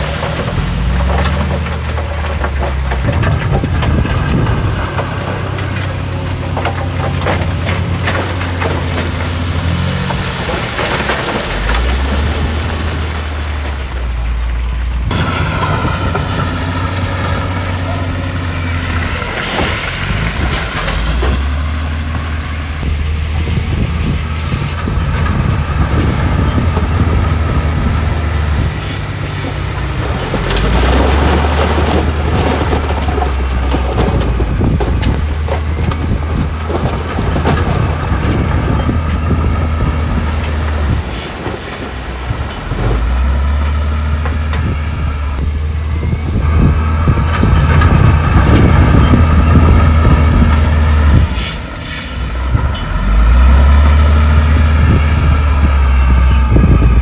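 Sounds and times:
stones rattling and clanking: 0.0s - 13.8s
diesel engine under load: 0.0s - 57.0s.

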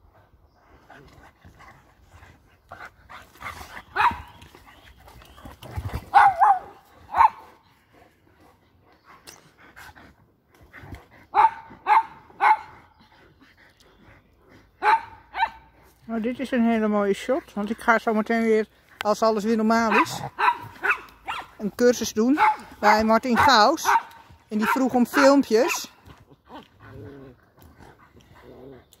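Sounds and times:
dogs barking: 3.8s - 4.4s, 6.1s - 7.6s, 11.3s - 12.9s, 14.8s - 15.7s, 19.8s - 21.6s, 22.3s - 26.0s.

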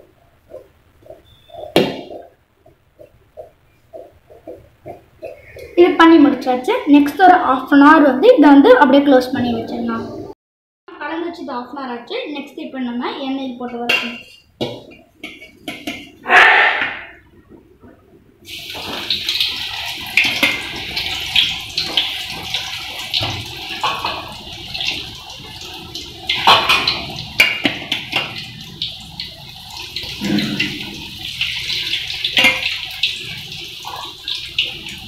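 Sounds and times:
food deep-frying in hot oil: 18.4s - 35.0s.

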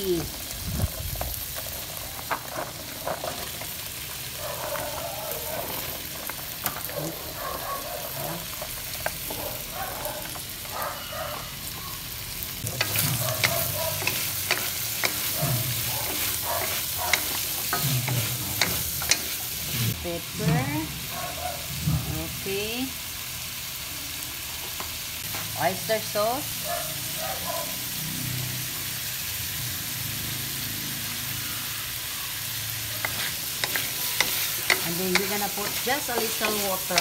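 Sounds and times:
food sizzling in a wok: 0.0s - 37.0s
wooden spatulas scraping wok: 12.6s - 20.7s, 32.9s - 37.0s.

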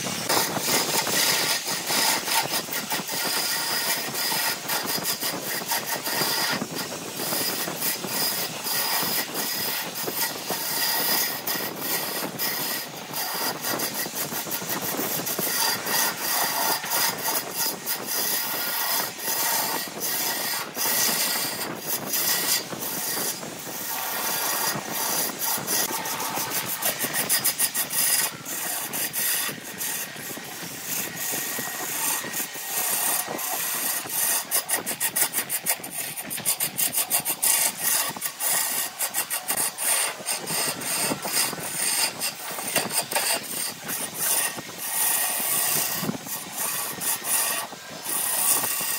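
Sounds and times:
lathe gouge scraping wood: 0.0s - 48.9s
rapid tool clicks: 0.0s - 48.9s.

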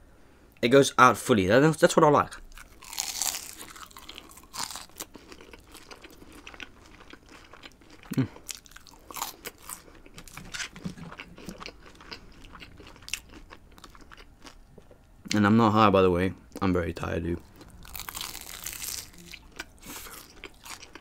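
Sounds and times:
crunchy chewing: 2.5s - 15.0s, 17.4s - 21.0s.

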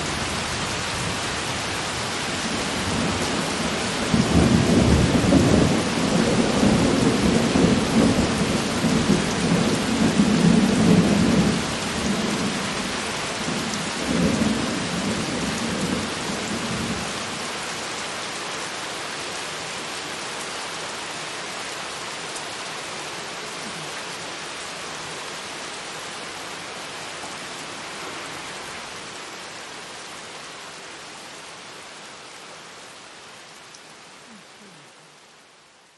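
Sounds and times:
steady rain hiss: 0.0s - 35.9s.

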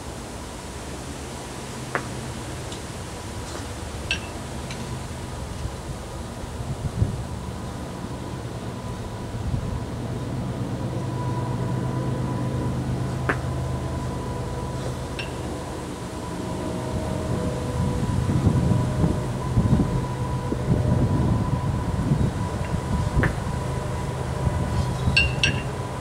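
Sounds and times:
low mechanical hum: 0.0s - 26.0s
kettlebells clinking together: 25.2s - 25.7s.

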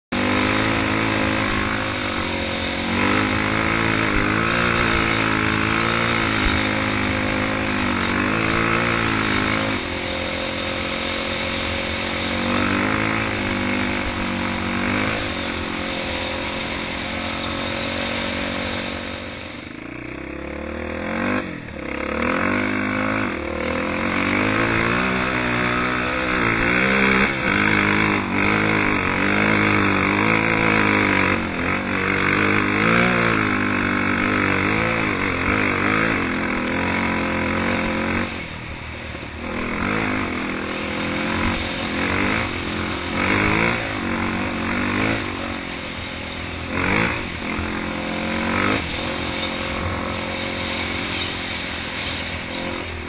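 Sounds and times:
off-road vehicle engine revving: 0.0s - 53.0s.

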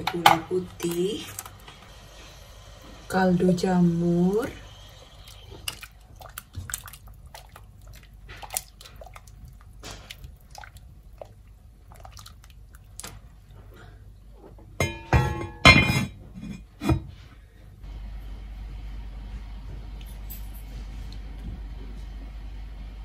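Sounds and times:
spoon stirring in metal pot: 5.2s - 13.4s
heavy lid clanking: 14.8s - 16.2s.

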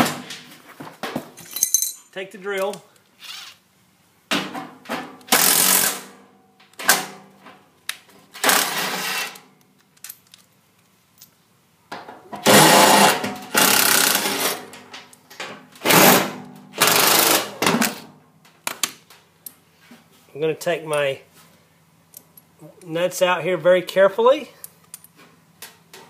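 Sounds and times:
cordless drill bursts: 12.5s - 14.4s.

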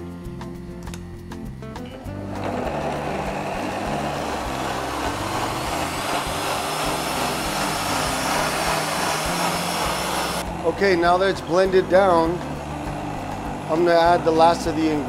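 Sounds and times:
blender running: 2.1s - 15.0s.

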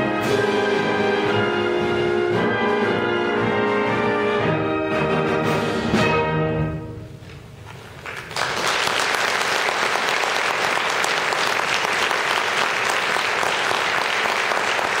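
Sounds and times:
audience applause: 8.0s - 15.0s.

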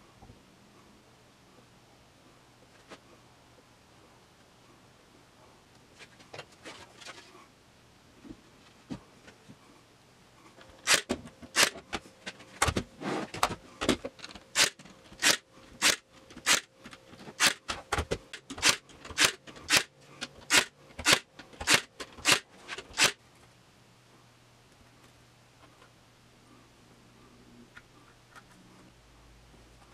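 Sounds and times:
nail gun firing into wood: 10.8s - 11.8s, 14.6s - 16.7s, 17.4s - 19.9s, 20.5s - 23.2s.

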